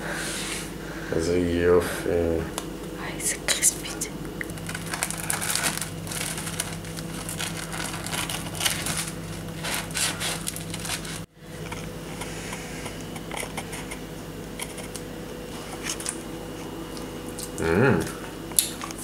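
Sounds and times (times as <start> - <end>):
hands tearing bread: 4.4 - 11.8.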